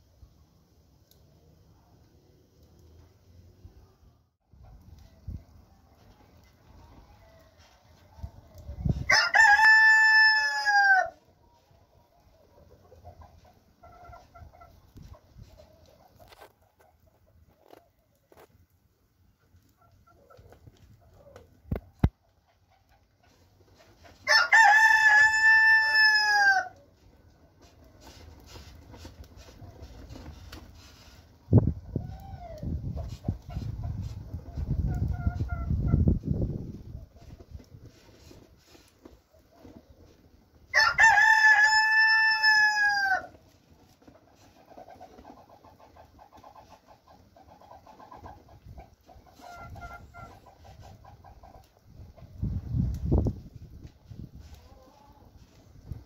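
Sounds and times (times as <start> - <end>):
rooster crowing: 9.1 - 11.2, 24.3 - 26.8, 40.7 - 43.3.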